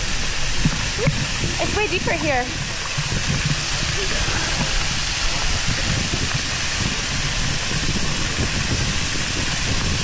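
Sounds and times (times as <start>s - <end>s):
waterfall pouring over rocks: 0.0s - 10.0s.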